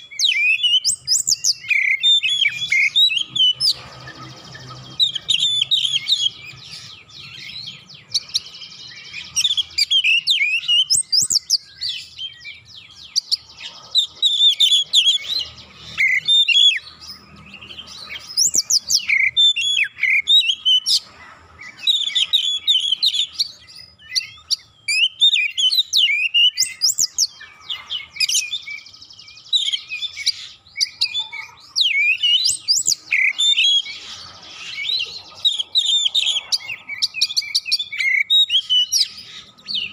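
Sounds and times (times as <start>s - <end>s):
bird singing rapid song: 0.0s - 39.9s.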